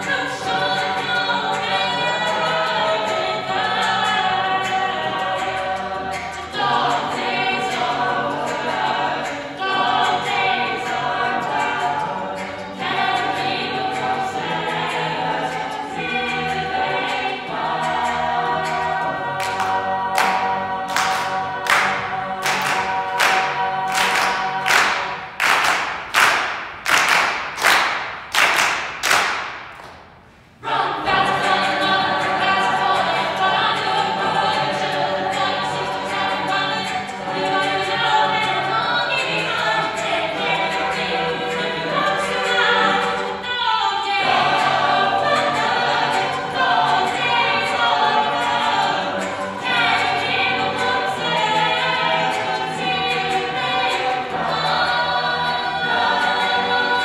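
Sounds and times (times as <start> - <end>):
group singing in close harmony: 0.0 - 28.0, 30.6 - 57.0
hand claps: 19.4 - 30.2.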